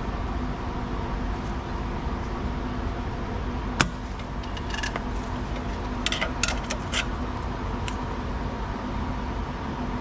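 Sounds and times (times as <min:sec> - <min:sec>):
pliers clinking on metal: 0:04.4 - 0:07.1.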